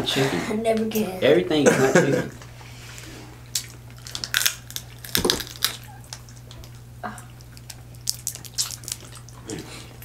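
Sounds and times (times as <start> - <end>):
steady low hum: 0.0 - 10.0
chewing: 2.9 - 10.0
shells cracking and peeling: 3.5 - 6.8, 7.4 - 9.5.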